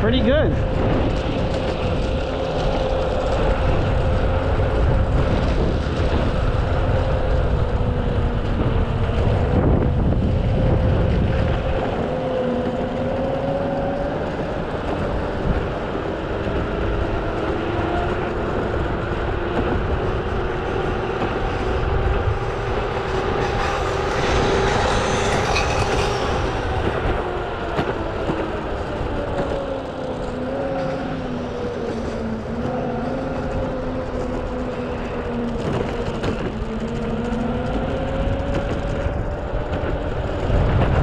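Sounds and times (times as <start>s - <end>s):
skateboard tires rumbling on asphalt: 0.0s - 41.0s
electric motor whine: 17.7s - 28.8s.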